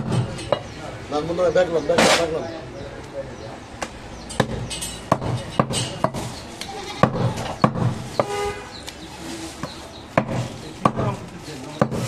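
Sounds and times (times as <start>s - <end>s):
cleaver chopping on wooden block: 4.4s - 6.4s, 7.0s - 8.4s, 10.2s - 12.0s.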